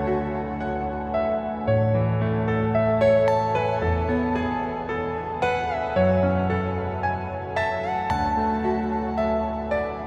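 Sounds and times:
slow gentle instrumental music: 0.0 - 10.0.

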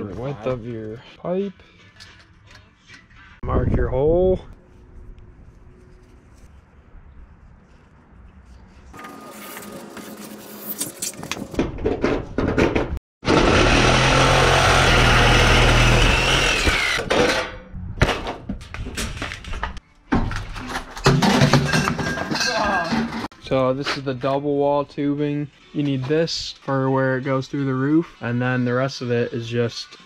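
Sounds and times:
jigsaw cutting sheet metal: 13.2 - 17.5.

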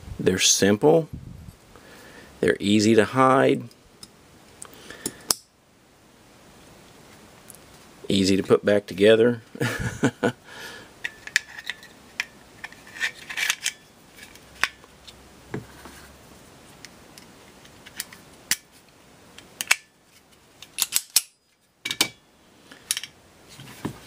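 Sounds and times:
metal gun parts clicking: 11.0 - 14.8, 19.6 - 19.9, 20.6 - 22.2.

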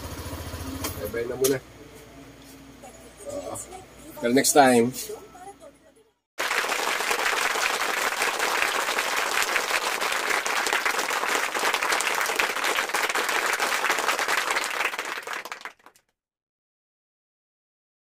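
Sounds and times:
crowd applause: 6.4 - 16.0.

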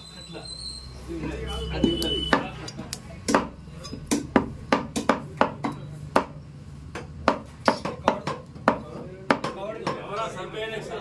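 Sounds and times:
cleaver chopping meat: 3.2 - 6.4.

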